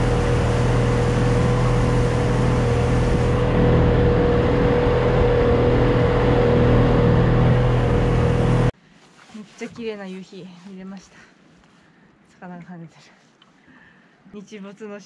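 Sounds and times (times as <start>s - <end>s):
outboard motor running: 0.0s - 8.7s
water wash: 0.0s - 8.7s.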